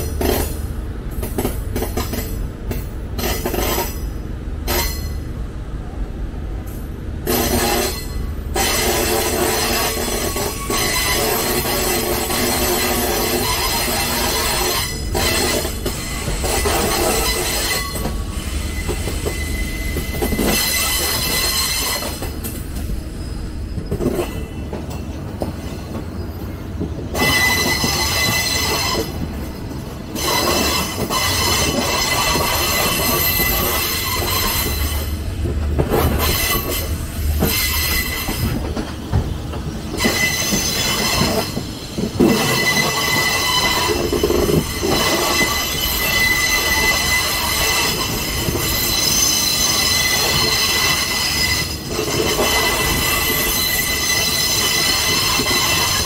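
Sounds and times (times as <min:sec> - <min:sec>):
train rumbling on rails: 0:00.0 - 0:56.0
wheels squealing against rail: 0:03.2 - 0:05.4, 0:06.8 - 0:56.0.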